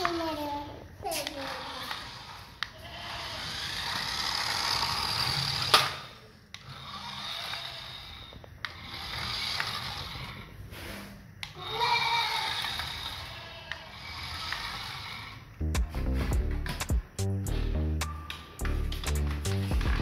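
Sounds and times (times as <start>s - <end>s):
toy car electric motor and gears: 0.0s - 15.6s.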